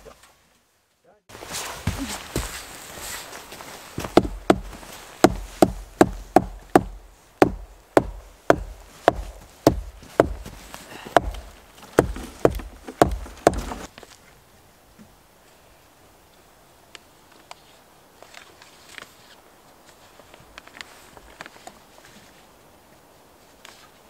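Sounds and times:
sharp knocks on wood: 4.0 - 13.9.

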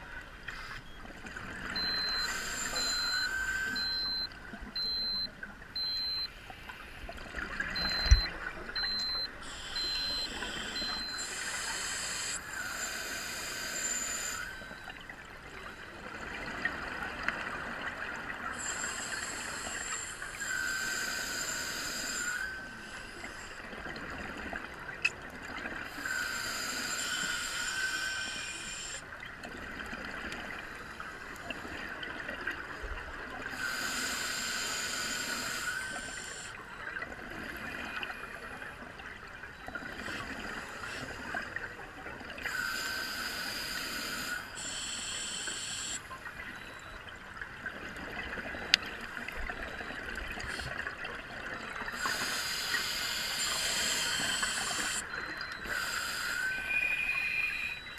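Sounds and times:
scuba regulator hissing inhales: 8.8 - 14.6, 18.6 - 23.5, 25.9 - 29.0, 33.5 - 36.6, 42.5 - 46.1, 51.9 - 57.8.

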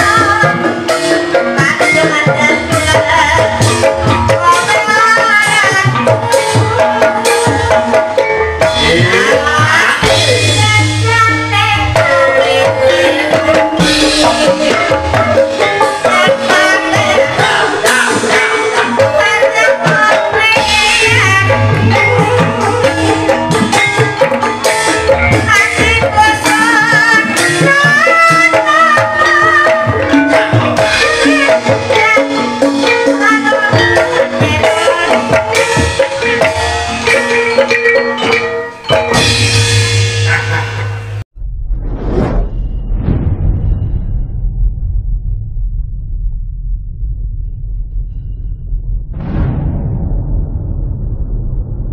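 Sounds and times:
bamboo xylophone melody: 32.8 - 41.0
bamboo xylophones ringing: 36.2 - 40.1.

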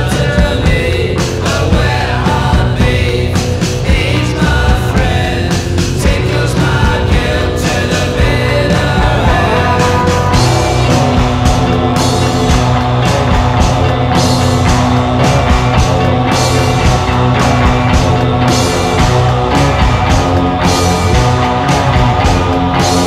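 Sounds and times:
rock band music: 0.0 - 23.0.

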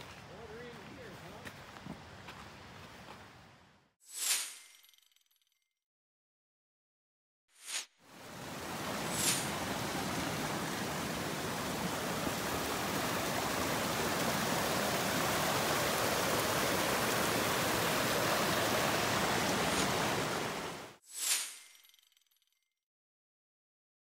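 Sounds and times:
creek flowing: 8.1 - 21.0.

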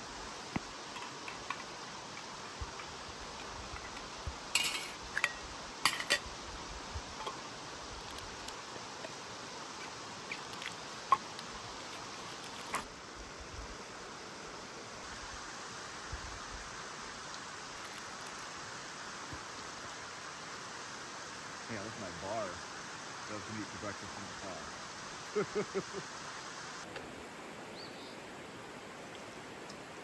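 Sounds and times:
flowing water rushing: 0.0 - 30.0
lid fitted on cookware: 4.6 - 6.2.

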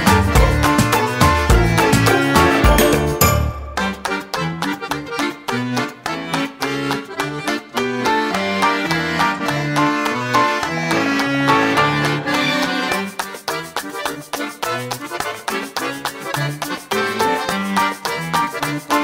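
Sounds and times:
instrumental theme music: 0.0 - 19.0.

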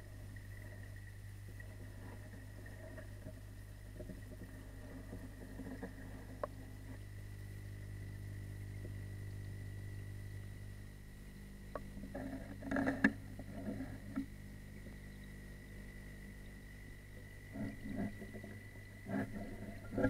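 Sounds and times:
low electrical hum underwater: 0.0 - 20.0
steady low tones: 6.0 - 20.0.

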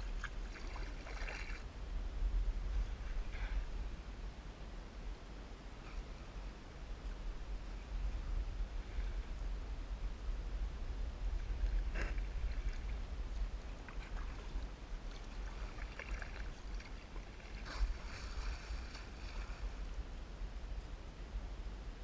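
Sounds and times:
water lapping against kayak: 0.0 - 1.7, 11.2 - 20.1
low rumble on microphone: 0.0 - 22.0.

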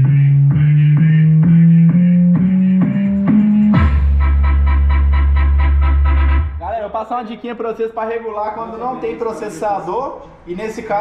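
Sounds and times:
subwoofer bass tones: 0.0 - 7.0.

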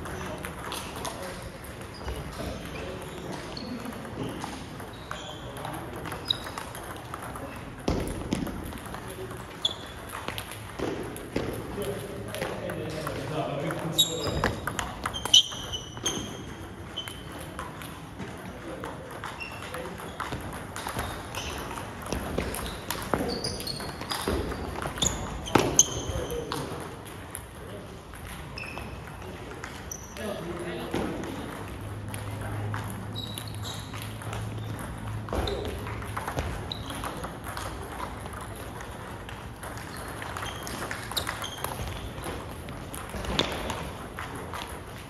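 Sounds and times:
table tennis ball hits: 0.0 - 29.9, 30.8 - 45.0
short high squeaks: 6.2 - 6.6, 9.6 - 10.0, 13.9 - 17.3, 39.9 - 42.1.

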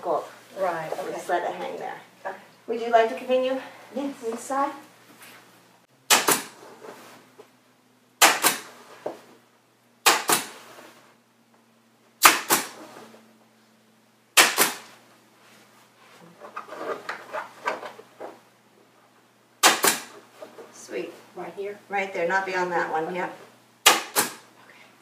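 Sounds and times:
pneumatic staple gun firing: 6.1 - 6.6, 8.2 - 8.7, 10.0 - 10.6, 12.2 - 12.8, 14.4 - 14.9, 19.6 - 20.2, 23.8 - 24.4.

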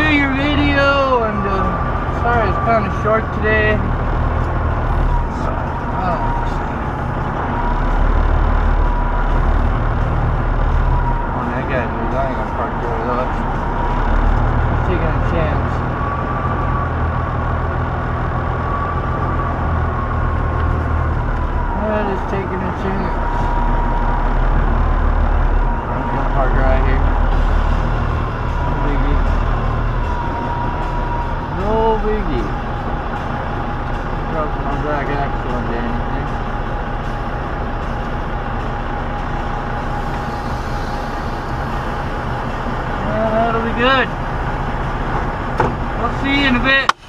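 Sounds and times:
diesel truck engine idling: 0.0 - 47.0
thin steady whine: 39.1 - 44.0.

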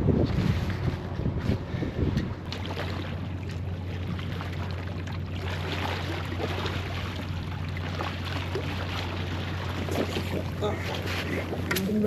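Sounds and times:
boat engine humming: 0.0 - 12.0
wind and water rushing: 0.0 - 12.0.

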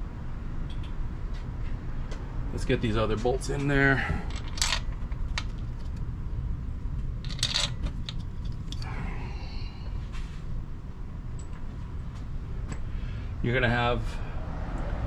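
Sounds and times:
low rumble: 4.0 - 13.5
metal bolts clicking and clinking: 4.3 - 6.0, 7.2 - 8.9.

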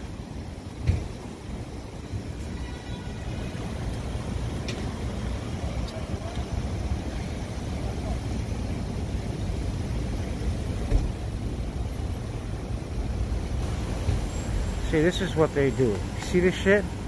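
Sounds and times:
rumble of passing cars: 0.0 - 17.0
short thump: 0.8 - 1.2, 10.9 - 11.2.

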